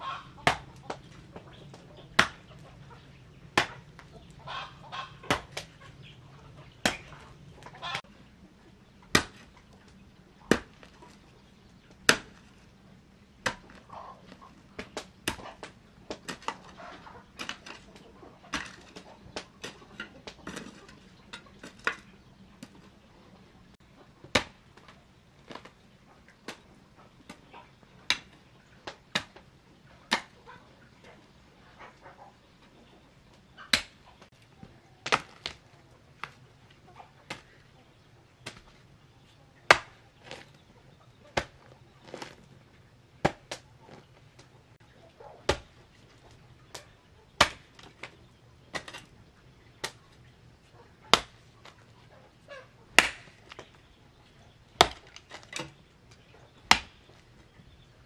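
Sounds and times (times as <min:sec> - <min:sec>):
hoe chopping into soil: 0:00.4 - 0:01.1, 0:02.1 - 0:02.6, 0:03.5 - 0:05.8, 0:06.8 - 0:07.2, 0:09.1 - 0:09.6, 0:10.5 - 0:11.2, 0:11.9 - 0:12.6, 0:13.4 - 0:22.0, 0:30.1 - 0:30.4, 0:35.0 - 0:36.4, 0:38.4 - 0:38.8, 0:39.7 - 0:40.6, 0:41.3 - 0:42.5, 0:43.2 - 0:44.2, 0:45.5 - 0:45.8, 0:47.4 - 0:48.1, 0:48.7 - 0:49.1, 0:53.0 - 0:53.8, 0:54.8 - 0:55.8, 0:56.6 - 0:57.2.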